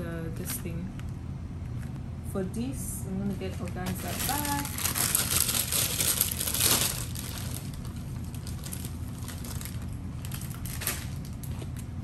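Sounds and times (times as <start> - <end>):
low room hum: 0.0 - 12.0
plastic packaging rustling: 3.3 - 12.0.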